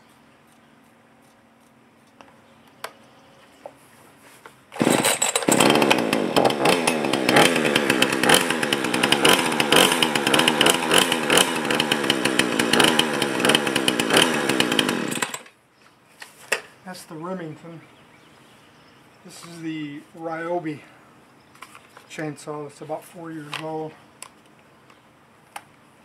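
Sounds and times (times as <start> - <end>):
chainsaw engine revving: 4.7 - 15.5.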